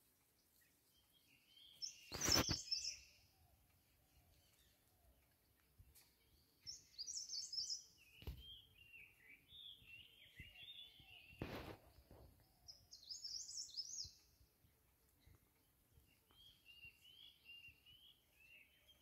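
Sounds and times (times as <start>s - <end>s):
songbirds twittering: 0.3s - 19.0s.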